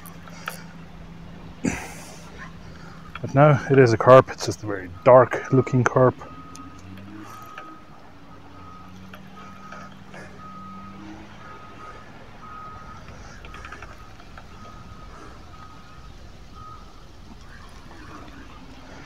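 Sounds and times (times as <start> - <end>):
low engine hum: 0.0 - 19.0
reversing alarm beeping: 2.2 - 19.0.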